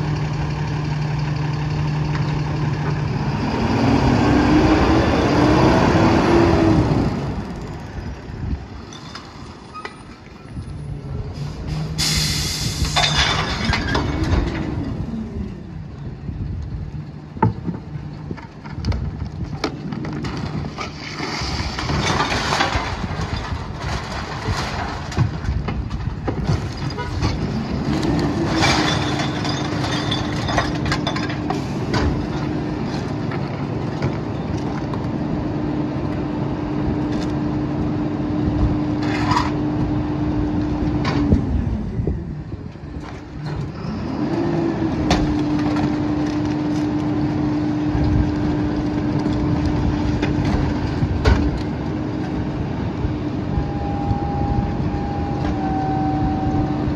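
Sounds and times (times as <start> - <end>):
garbage truck engine revving: 0.0 - 7.7, 27.2 - 33.8.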